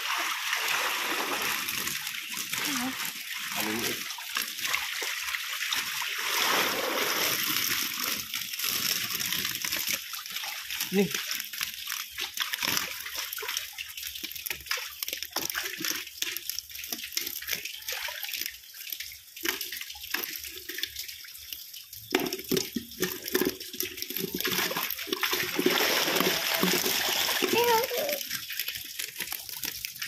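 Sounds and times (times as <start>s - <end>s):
steady watery hiss: 0.0s - 4.3s, 5.8s - 8.6s
water splashing around fish: 0.0s - 30.0s.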